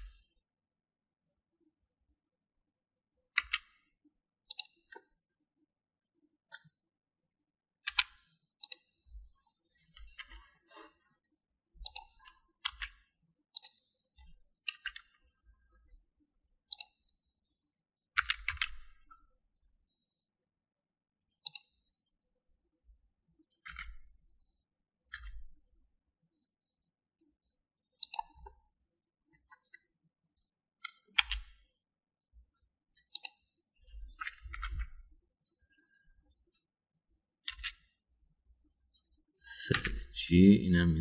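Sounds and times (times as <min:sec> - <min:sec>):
keyboard and mouse clicks: 0:03.3 - 0:03.8, 0:04.4 - 0:05.0, 0:07.8 - 0:09.0, 0:11.8 - 0:13.9, 0:16.7 - 0:17.1, 0:18.2 - 0:19.2, 0:21.4 - 0:21.8, 0:28.0 - 0:28.6, 0:30.8 - 0:31.6, 0:33.0 - 0:35.0, 0:37.4 - 0:37.9.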